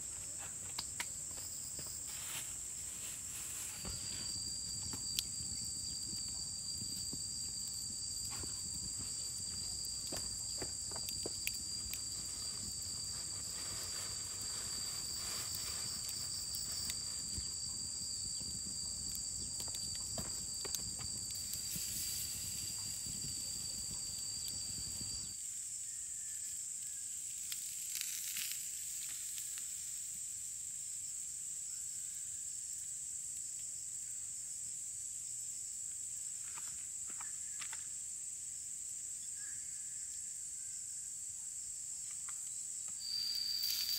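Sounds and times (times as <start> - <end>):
insects droning high-pitched: 0.0 - 43.9
small crackles and clicks: 18.3 - 25.3, 26.8 - 29.8, 42.1 - 43.9.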